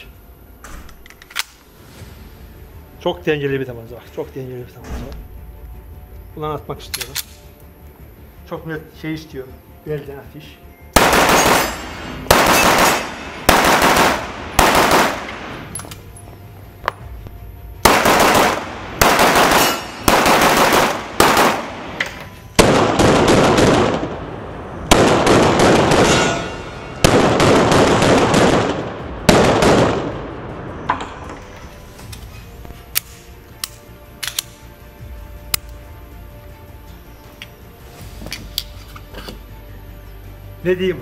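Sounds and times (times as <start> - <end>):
pistol shots ringing indoors: 11.0 - 16.0, 17.9 - 24.2.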